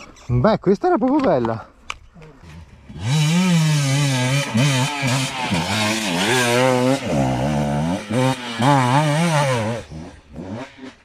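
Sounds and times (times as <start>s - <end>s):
motorcycle engine revving: 2.5s - 11.0s.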